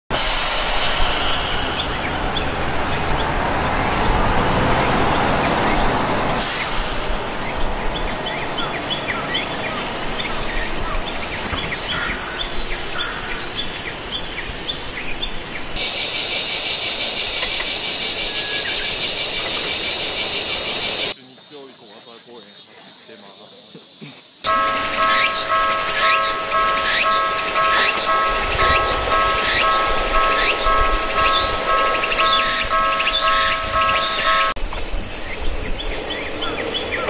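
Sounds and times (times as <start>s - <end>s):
pulsing insect trill: 1.0s - 21.2s, 24.5s - 37.0s
steady low noise: 24.5s - 36.9s.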